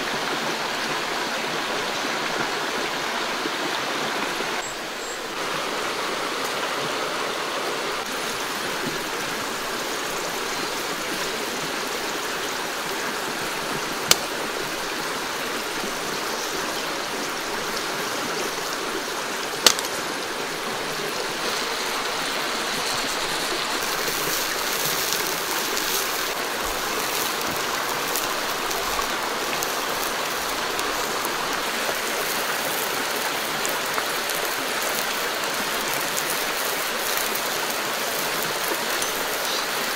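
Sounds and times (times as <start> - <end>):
flowing stream water: 0.0 - 39.9
food sizzling on hot stone: 19.6 - 20.0, 21.4 - 38.3.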